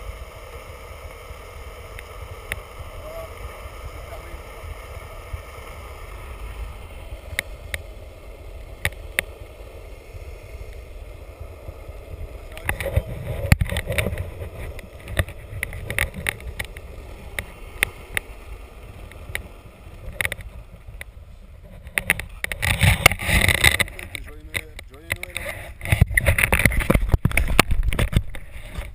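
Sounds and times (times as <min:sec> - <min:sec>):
skateboard wheels rolling on asphalt: 0:00.0 - 0:28.9
sharp clicks and knocks: 0:08.6 - 0:09.4, 0:12.5 - 0:18.3, 0:19.0 - 0:28.9.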